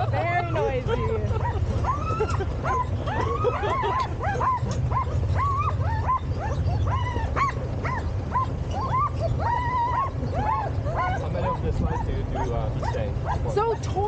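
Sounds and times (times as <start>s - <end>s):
sled dogs yipping and whining: 0.0s - 14.0s
steady low rumble: 0.0s - 14.0s.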